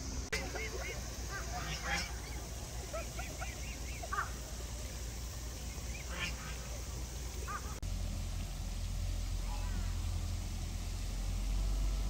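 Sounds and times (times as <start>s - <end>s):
low background noise: 0.0s - 12.0s
geese calling: 0.3s - 7.8s, 9.4s - 10.2s.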